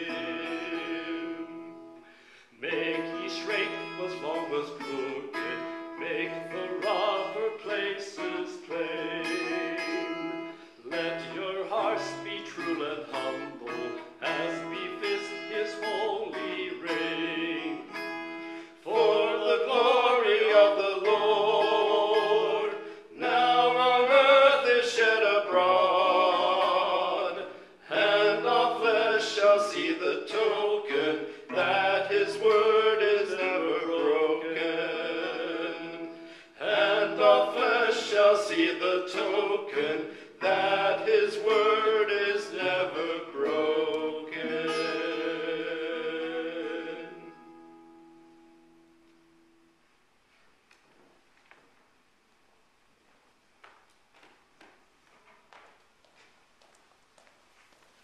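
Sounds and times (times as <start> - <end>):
person singing: 0.0 - 1.9, 2.6 - 18.1, 18.8 - 47.6
acoustic guitar fingerpicked: 0.0 - 24.7, 25.4 - 49.6.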